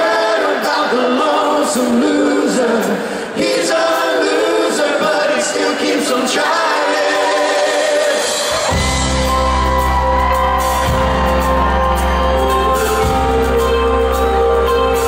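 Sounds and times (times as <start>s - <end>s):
voices singing a cappella harmony: 0.0s - 8.8s
band with bass and drums: 7.4s - 15.0s.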